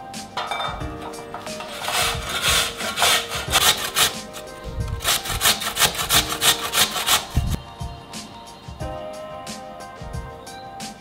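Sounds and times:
background music: 0.0s - 11.0s
potato rasping on metal grater: 1.4s - 7.6s.

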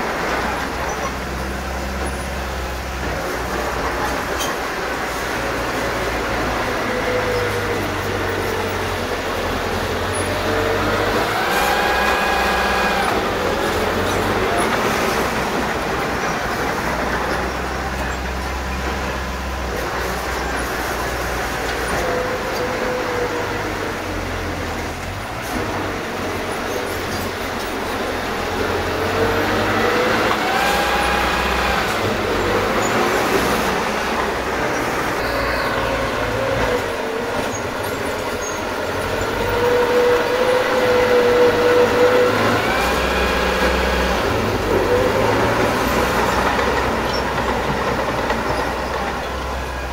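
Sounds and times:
bulldozer diesel engine under load: 0.0s - 49.9s
high pitched squeal: 29.4s - 47.3s.

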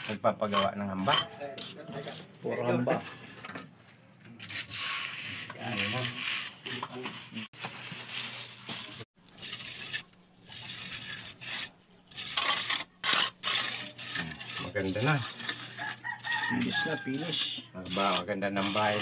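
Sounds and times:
trowel scraping wet mortar: 0.0s - 3.4s, 4.3s - 7.5s, 9.4s - 19.0s.

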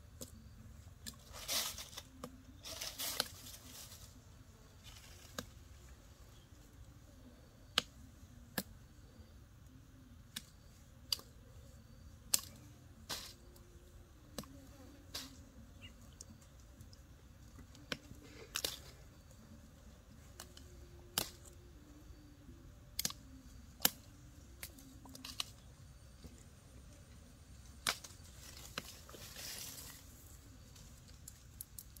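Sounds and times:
rustle: 1.0s - 6.6s, 24.9s - 32.0s.

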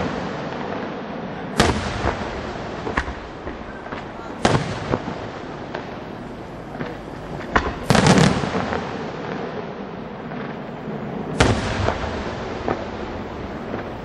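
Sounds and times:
small firework pops: 0.0s - 6.1s, 6.7s - 9.6s
echoing rumble: 1.3s - 14.0s
firework shells bursting: 1.5s - 9.6s.

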